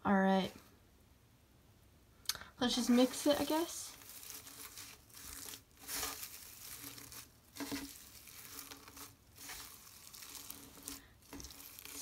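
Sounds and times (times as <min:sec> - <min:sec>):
paper strips crinkling in slime: 0:02.6 - 0:12.0.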